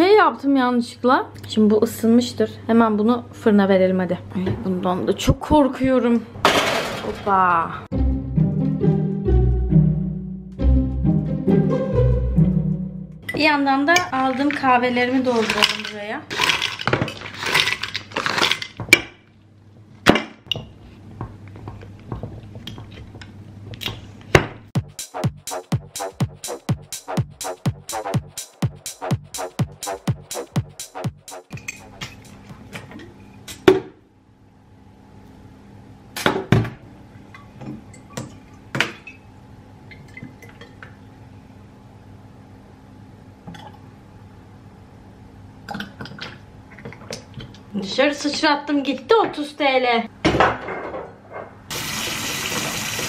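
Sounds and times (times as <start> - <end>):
capsules rattling into glass jar: 14.1 - 18.8.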